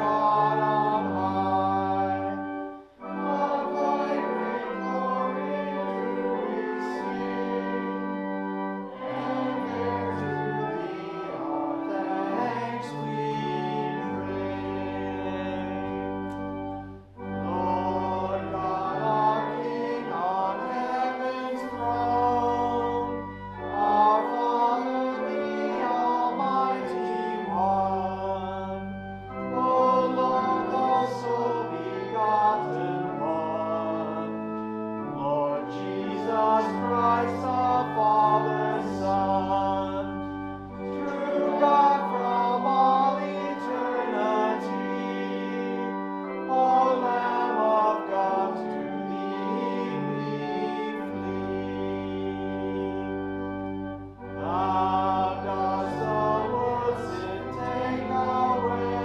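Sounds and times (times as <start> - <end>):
church organ: 0.0 - 59.0
congregation singing a hymn: 0.0 - 59.0.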